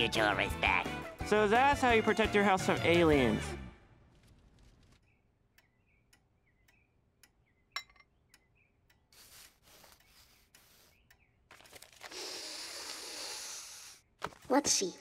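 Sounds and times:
clock ticking: 5.5 - 7.5, 8.3 - 9.2.

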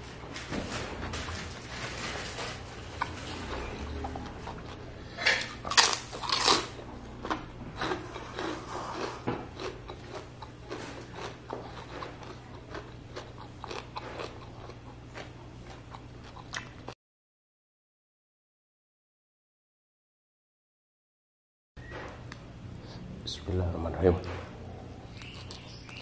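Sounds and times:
chewing crispy fried chicken: 2.4 - 17.0, 24.8 - 26.0
loud crunches: 5.4 - 16.8.

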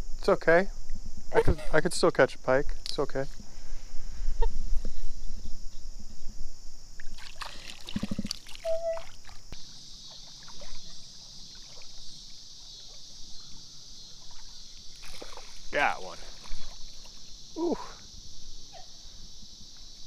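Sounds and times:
water splashing in a creek: 7.0 - 13.3, 14.0 - 17.3.

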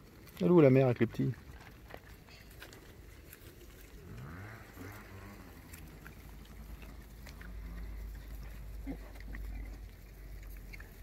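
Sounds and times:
boars snuffling: 0.0 - 11.0
boar grunts: 4.0 - 9.9.

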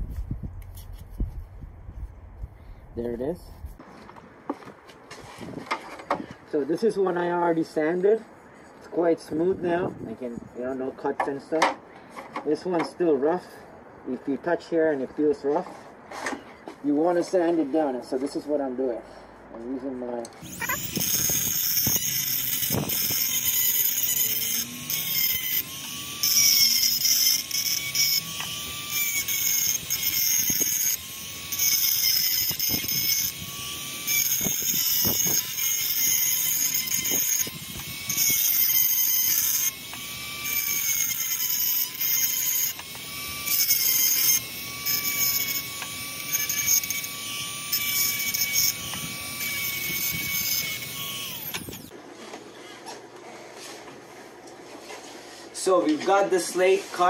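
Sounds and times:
bit grinding on slate: 20.2 - 52.0
rotary tool motor whining: 20.4 - 52.0.

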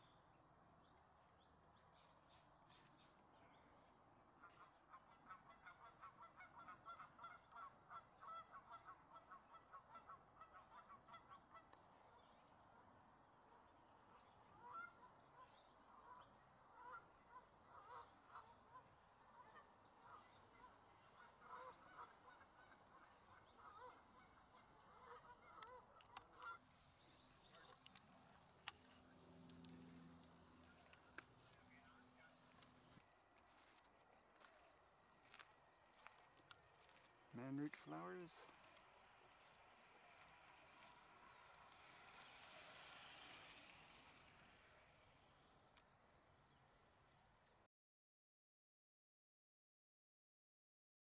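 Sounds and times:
faint goose honking: 4.3 - 12.9, 13.5 - 33.8.

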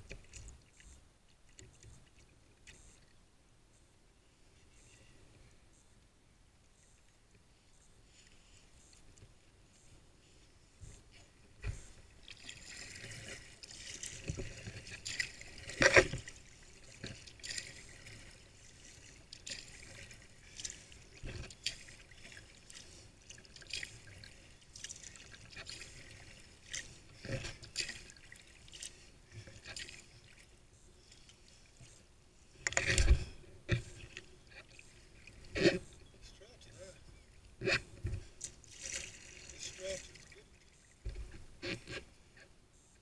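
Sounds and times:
paddle splashing water: 11.2 - 32.0, 32.6 - 42.1.

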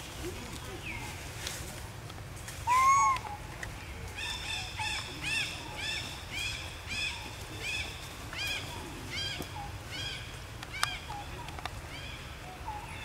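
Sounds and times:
loud animal call: 2.7 - 3.4.

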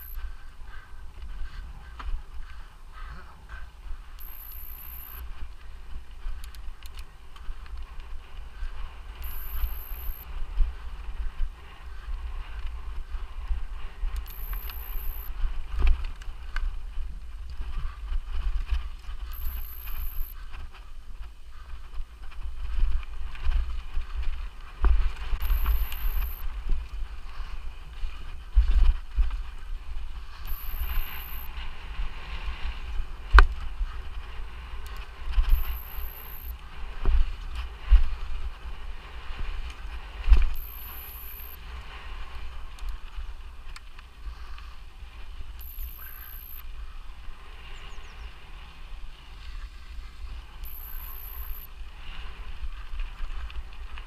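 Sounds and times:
short high-pitched beep: 0.0 - 0.2, 4.2 - 5.2, 9.2 - 10.3, 14.2 - 15.3, 19.3 - 20.4, 25.4 - 26.4, 30.5 - 31.5, 35.5 - 36.6, 40.5 - 41.6, 45.6 - 46.7, 50.6 - 51.7
bike tyres on rough ground: 0.0 - 54.0.

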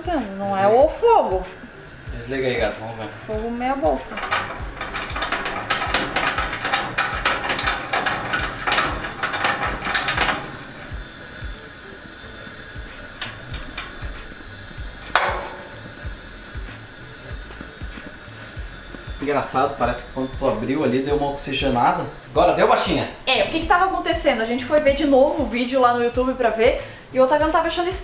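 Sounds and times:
hand pump clicking and rattling: 3.3 - 16.7
burner lighting pop: 3.4 - 20.5.

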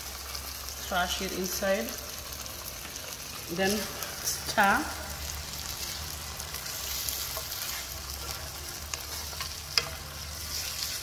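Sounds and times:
curry sizzling in a pan: 0.0 - 11.0
spatula scraping a pan: 5.8 - 11.0.

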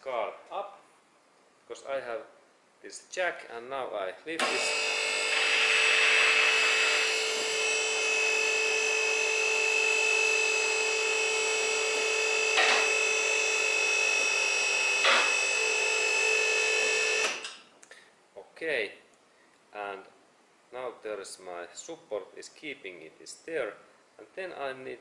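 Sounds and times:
car lift motor whining: 4.4 - 17.6.

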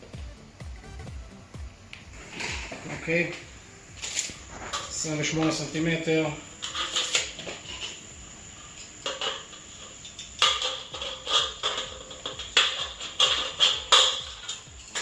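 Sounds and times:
metal snips cutting steel: 9.0 - 15.0.

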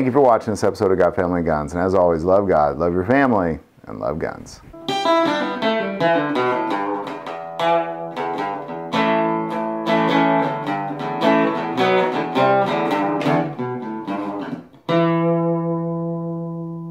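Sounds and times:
guitar picked and strummed chords: 4.6 - 16.9.

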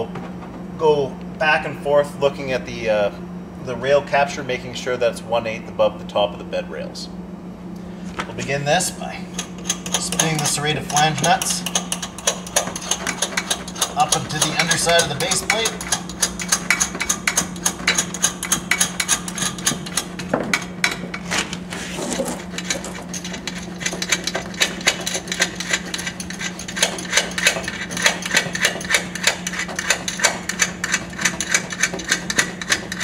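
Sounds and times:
steady low hum: 0.0 - 33.0
metallic clicking and rattling: 9.4 - 21.2
nuts spun on threaded rods: 9.6 - 20.1.

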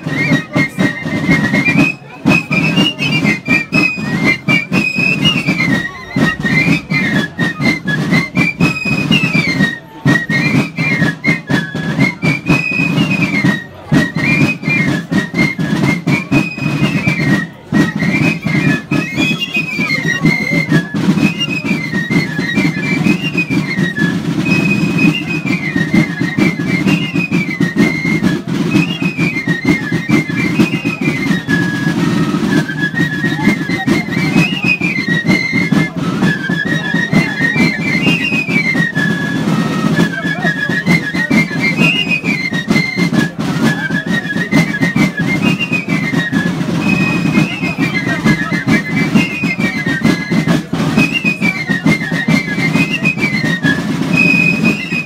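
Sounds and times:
crowd noise: 0.0 - 55.0
fife playing folk melody: 0.0 - 55.0
percussion: 0.0 - 55.0.

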